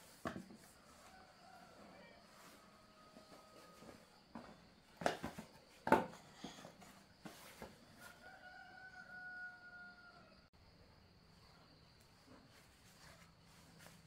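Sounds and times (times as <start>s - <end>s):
rooster crowing: 0.8s - 4.1s, 8.0s - 10.5s.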